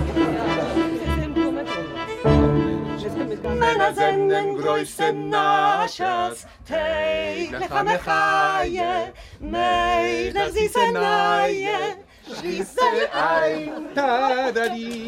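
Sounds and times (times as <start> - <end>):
woman singing unaccompanied: 3.4 - 12.1.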